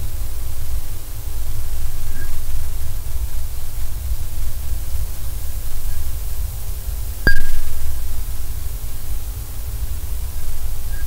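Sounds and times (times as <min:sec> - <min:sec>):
steady low rumble: 0:00.0 - 0:11.0
sharp ringing click on glass: 0:07.3 - 0:07.8
faint ping: 0:07.3 - 0:08.0.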